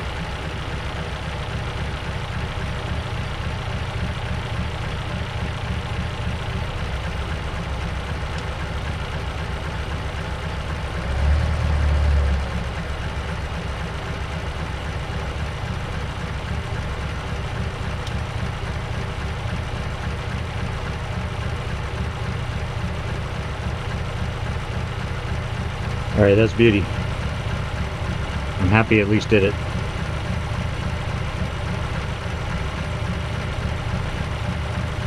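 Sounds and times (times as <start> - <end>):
car engine idling: 0.0 - 35.0.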